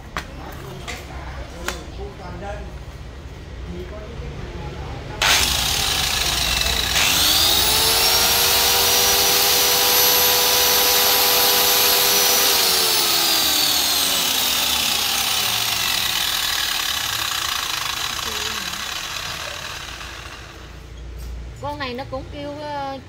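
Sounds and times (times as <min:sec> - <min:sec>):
circular saw motor whine: 0:05.2 - 0:20.8.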